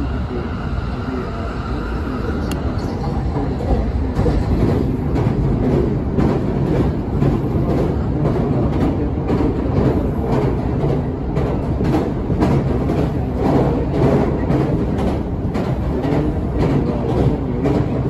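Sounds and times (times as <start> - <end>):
train rumbling over steel bridge: 0.0 - 18.0.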